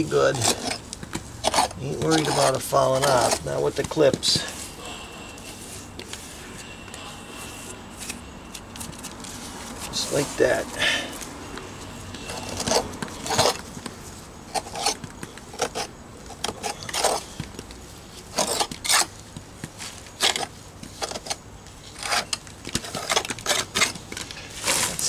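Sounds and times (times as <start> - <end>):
hands rubbing mortar into stone: 1.4 - 4.8.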